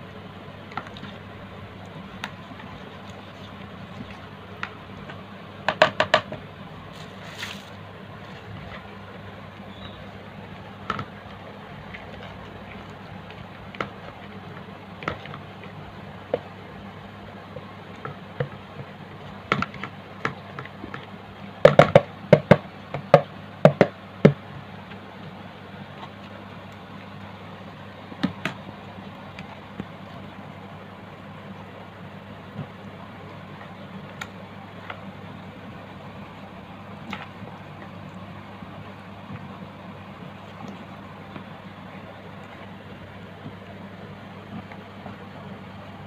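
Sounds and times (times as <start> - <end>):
steady low hum: 0.0 - 46.0
plastic spatula knocking on bowl: 5.7 - 6.4, 21.6 - 24.4.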